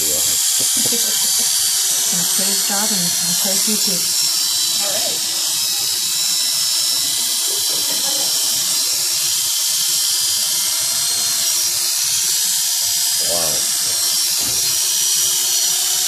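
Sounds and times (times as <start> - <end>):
electric clippers buzzing: 0.0 - 16.0.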